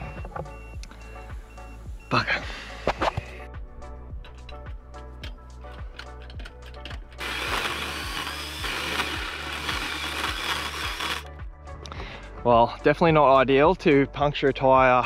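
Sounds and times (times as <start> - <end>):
background music with steady beat: 0.0 - 15.0
handheld power tool running: 7.2 - 11.3.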